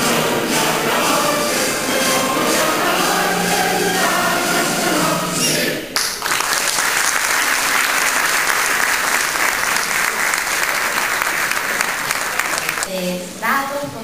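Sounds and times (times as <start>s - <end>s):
group of voices singing: 0.0s - 6.0s
audience applauding: 0.0s - 12.9s.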